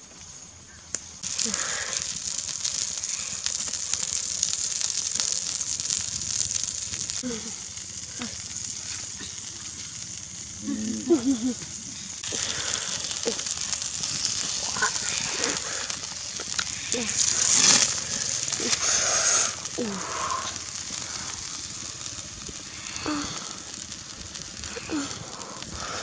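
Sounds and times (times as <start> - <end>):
eggs sizzling on hot stone: 0.0 - 26.0
fire crackling: 0.0 - 26.0
person speaking: 10.6 - 11.6.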